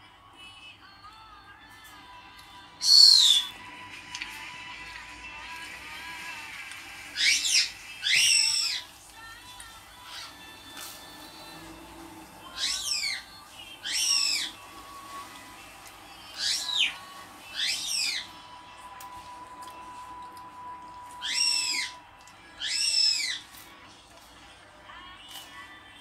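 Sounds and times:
high whistled bird-like calls: 2.8s - 3.6s, 7.0s - 8.9s, 10.0s - 15.4s, 16.1s - 18.5s, 21.1s - 23.5s.

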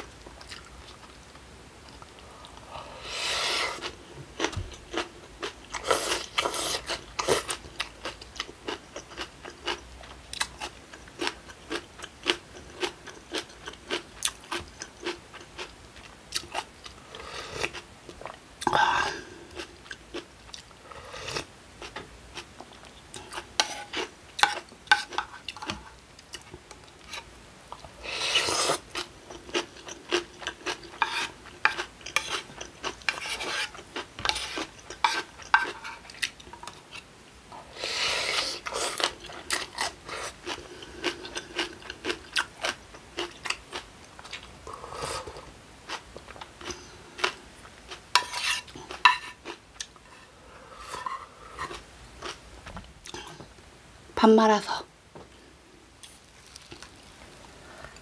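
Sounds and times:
cutlery clinking against a bowl: 23.2s - 25.9s, 48.2s - 49.4s.

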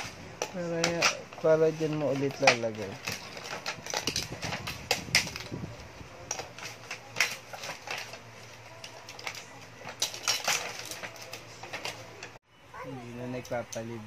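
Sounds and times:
plastic toy dishes clattering: 6.3s - 12.3s.

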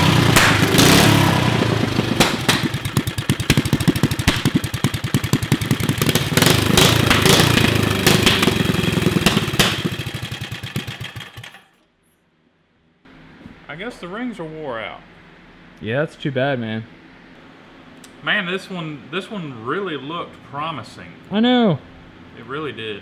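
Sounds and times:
small engine running: 0.0s - 11.8s.

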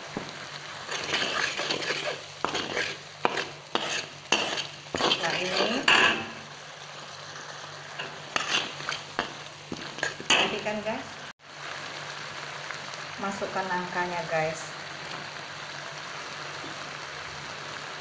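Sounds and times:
faint sauce sizzle: 0.0s - 18.0s
metal spatula scraping pan: 0.9s - 6.5s, 8.0s - 10.7s.

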